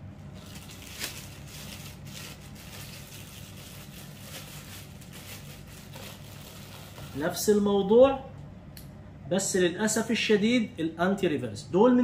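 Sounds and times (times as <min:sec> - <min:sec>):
plastic bag crinkling: 0:00.2 - 0:07.6.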